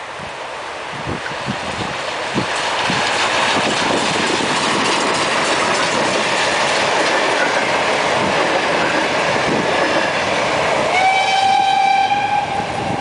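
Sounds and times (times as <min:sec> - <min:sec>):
train wheels clattering on rails: 0:01.2 - 0:11.0.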